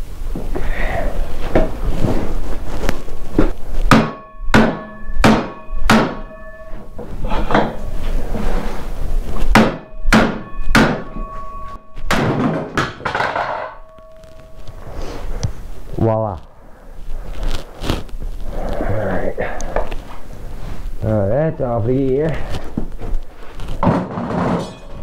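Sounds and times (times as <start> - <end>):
hammer striking metal: 3.9 - 7.9, 9.5 - 14.7, 24.0 - 25.0
metallic ring: 4.1 - 8.6, 9.2 - 12.2, 13.1 - 15.3, 24.3 - 25.0.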